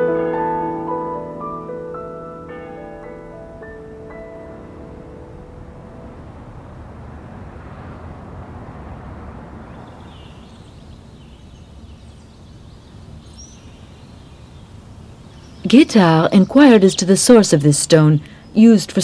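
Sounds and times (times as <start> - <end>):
low steady rumble: 0.0 - 18.4
small birds chirping: 9.3 - 19.0.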